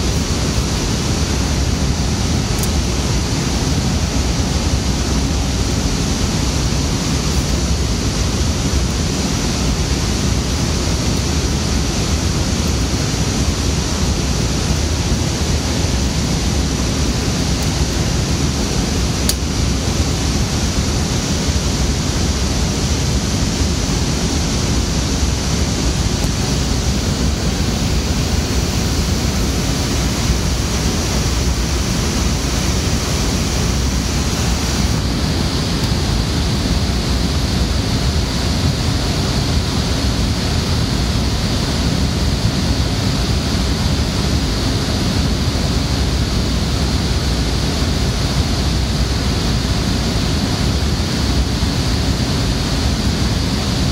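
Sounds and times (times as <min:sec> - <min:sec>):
server cooling fans rushing: 0:00.0 - 0:53.9.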